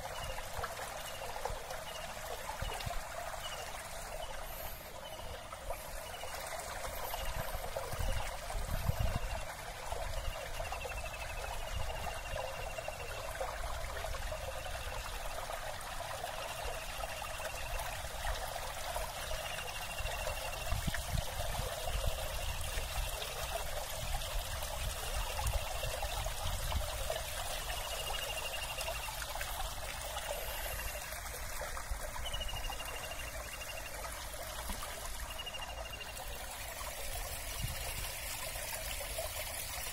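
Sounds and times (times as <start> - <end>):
wind rumbling on microphone: 7.1 - 10.3.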